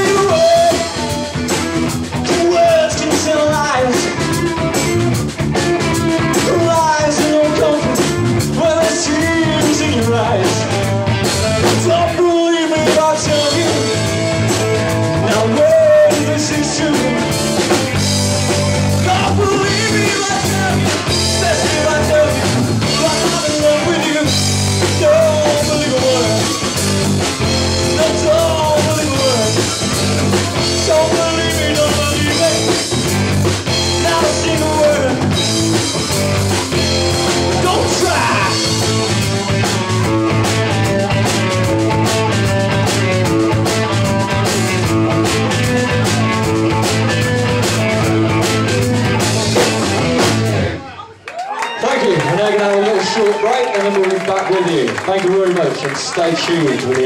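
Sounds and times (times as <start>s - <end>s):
person singing: 0.0s - 1.5s, 2.2s - 4.7s, 5.8s - 10.8s, 11.6s - 14.2s, 15.1s - 35.8s, 36.4s - 39.3s
electric guitar: 0.0s - 51.0s
bass guitar: 0.0s - 52.7s
drums: 0.0s - 57.0s.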